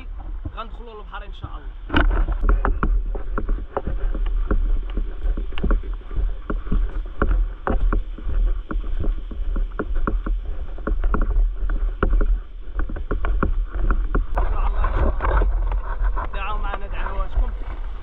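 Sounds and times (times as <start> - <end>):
low rumble: 0.0 - 18.0.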